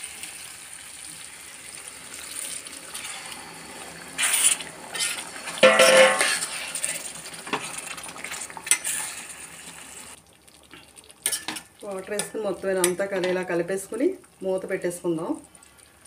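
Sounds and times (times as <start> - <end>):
water poured into a pot: 0.0 - 13.1
steady sizzle: 0.0 - 16.0
spoon stirring and knocking on pot: 5.0 - 6.4
loud metal clanks: 5.6 - 6.4.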